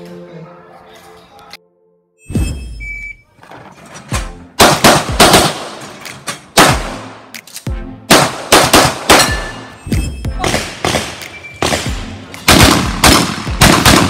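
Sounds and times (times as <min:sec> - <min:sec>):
handgun shots: 0:04.6 - 0:09.6, 0:10.4 - 0:14.0.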